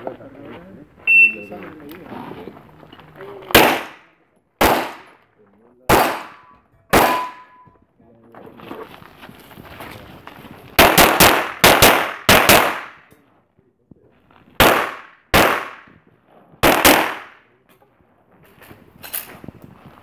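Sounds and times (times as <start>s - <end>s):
pistol shots with echo: 3.5s - 5.2s, 5.9s - 7.7s, 10.8s - 13.1s, 14.6s - 15.9s, 16.6s - 17.5s.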